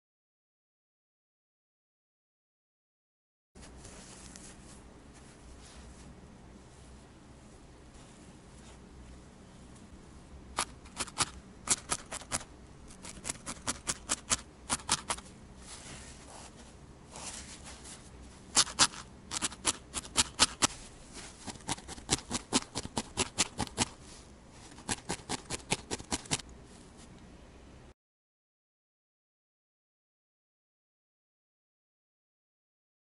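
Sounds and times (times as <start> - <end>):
felting needle stabbing wool: 10.5 - 15.3, 18.5 - 24.0, 24.7 - 26.4.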